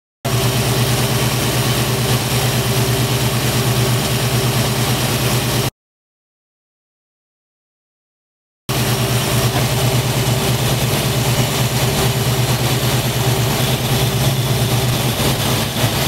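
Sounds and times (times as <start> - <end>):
car engine idling: 0.3 - 5.7, 8.7 - 16.0.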